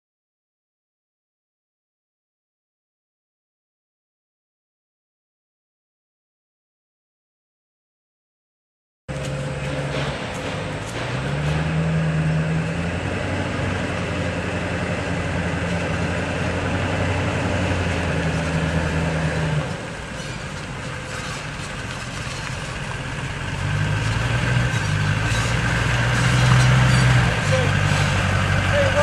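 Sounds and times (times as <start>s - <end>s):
truck engine running at low speed: 9.1s - 29.0s.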